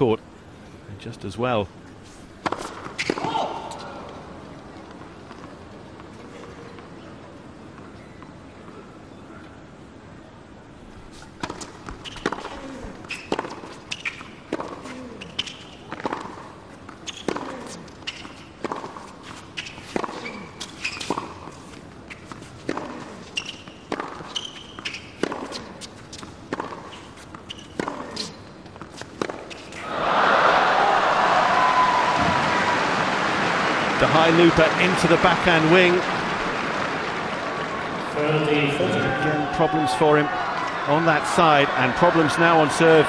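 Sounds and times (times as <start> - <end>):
shoe squeaks: 2.0 - 4.0, 11.1 - 15.9, 16.9 - 18.6, 19.2 - 29.8
ball bouncing on hard court: 17.1 - 19.0, 23.9 - 25.6
racket striking tennis ball: 23.9 - 25.8, 26.5 - 29.8.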